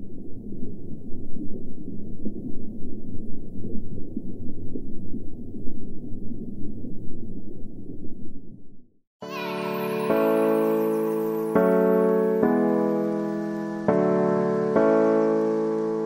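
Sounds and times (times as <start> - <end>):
muffled underwater rumble: 0.0 - 9.0.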